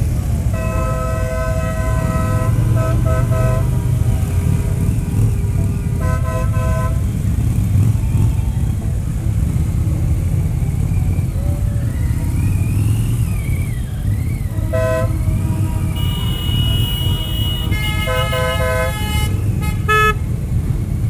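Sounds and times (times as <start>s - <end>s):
motorcycle engine rumbling: 0.0s - 21.0s
vehicle horn toot: 0.4s - 4.0s, 6.0s - 7.3s, 14.3s - 20.4s.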